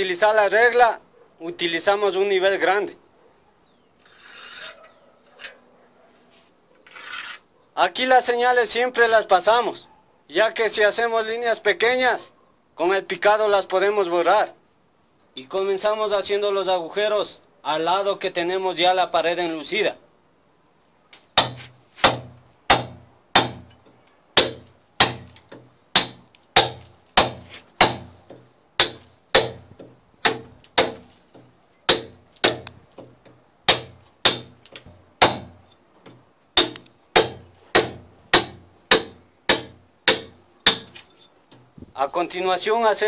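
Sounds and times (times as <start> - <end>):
hammer striking chisel: 21.4 - 23.8, 24.4 - 41.1.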